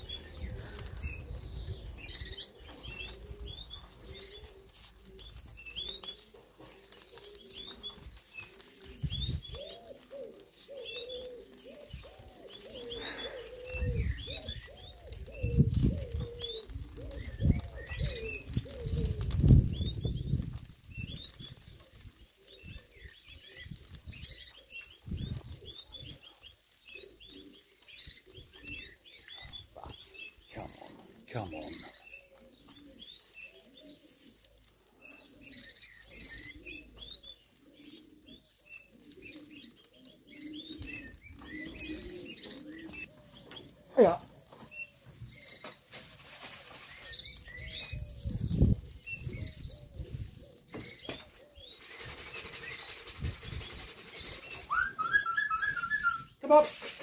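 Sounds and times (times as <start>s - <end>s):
pigeons cooing: 0.0s - 57.0s
small birds chirping: 0.0s - 57.0s
wing flapping: 11.1s - 26.2s, 45.6s - 47.6s, 51.0s - 57.0s.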